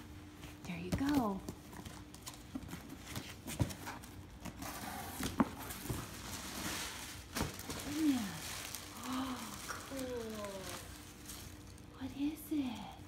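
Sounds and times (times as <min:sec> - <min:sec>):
tissue paper rustling: 0:02.8 - 0:11.9.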